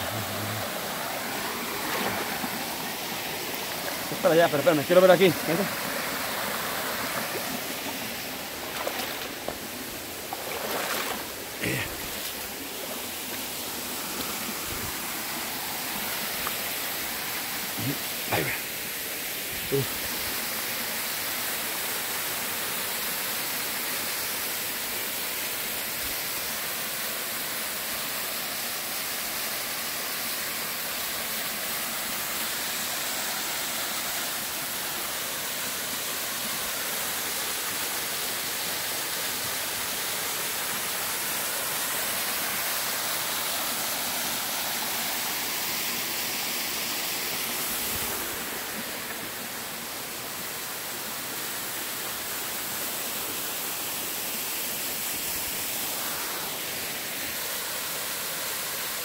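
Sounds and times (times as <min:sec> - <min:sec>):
waterfall splashing into pool: 0:00.0 - 0:18.9.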